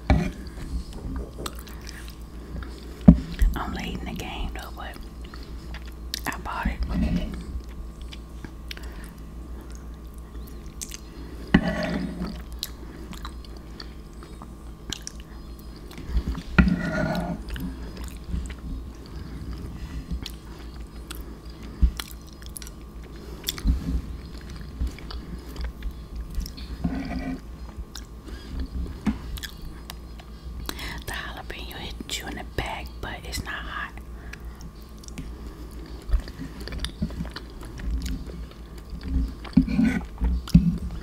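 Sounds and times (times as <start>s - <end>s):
chewing and mouth sounds: 0.9s - 3.6s, 4.2s - 6.6s, 7.3s - 11.1s, 11.9s - 16.5s, 17.4s - 26.8s, 27.6s - 31.2s, 34.2s - 41.0s
sharp mouth clicks: 14.9s - 15.3s.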